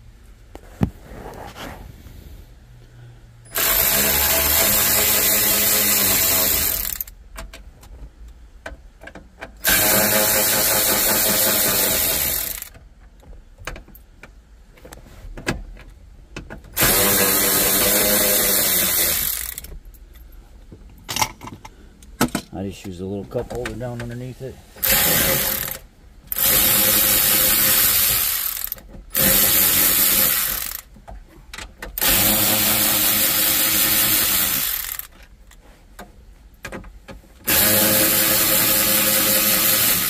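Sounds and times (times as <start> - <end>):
electric ratchet running: 3.5 - 7.1, 9.6 - 12.8, 16.8 - 19.7, 24.8 - 30.9, 32.0 - 35.1, 37.4 - 40.0.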